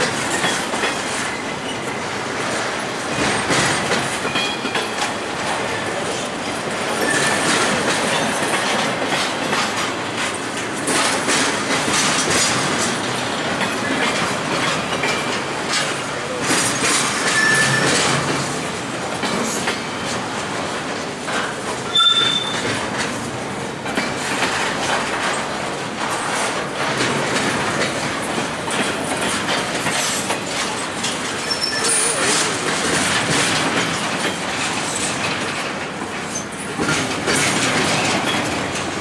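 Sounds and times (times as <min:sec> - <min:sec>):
clickety-clack over rail joints: 0:00.0 - 0:39.0
steel wheels rumbling on rail: 0:00.0 - 0:39.0
high wheel squeals: 0:07.0 - 0:07.5, 0:17.2 - 0:18.0, 0:21.9 - 0:22.7, 0:31.4 - 0:32.3.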